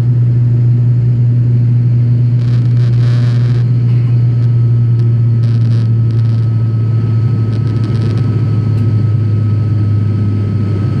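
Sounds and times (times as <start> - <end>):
airliner engine drone in cabin: 0.0 - 11.0
faint thin whine: 1.9 - 9.7.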